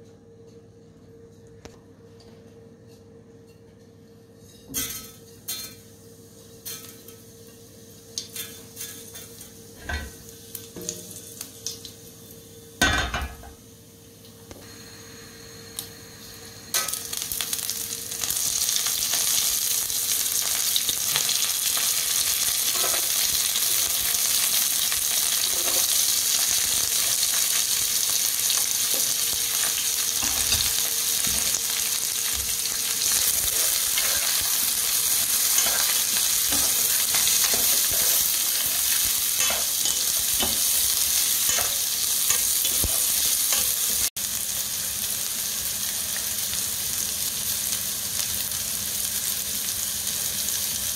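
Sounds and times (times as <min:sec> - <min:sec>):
oil sizzling in a frying pan: 0:14.6 - 0:50.9.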